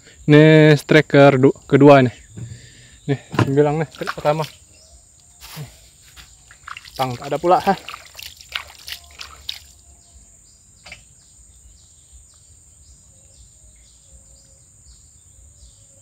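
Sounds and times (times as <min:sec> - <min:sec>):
high insect drone: 0:00.0 - 0:16.0
wet squelches and clicks: 0:03.9 - 0:04.6, 0:06.5 - 0:09.8.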